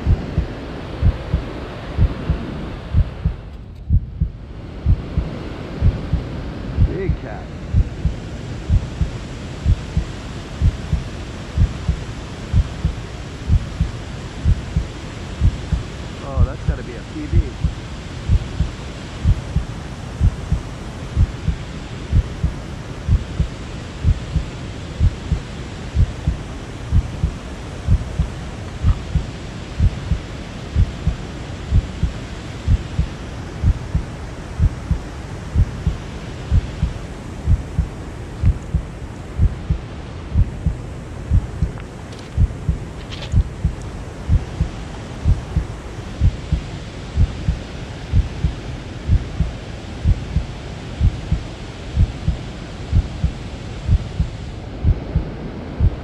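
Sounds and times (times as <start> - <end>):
low double thumps: 0.0 - 6.2, 37.5 - 39.8, 40.4 - 41.8, 42.4 - 42.8, 43.4 - 46.6
steady hiss: 0.0 - 56.0.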